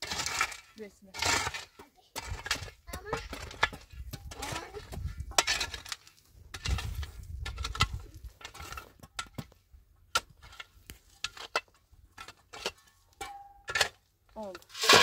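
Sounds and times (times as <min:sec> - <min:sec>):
small objects clicking and knocking: 0:00.0 - 0:15.0.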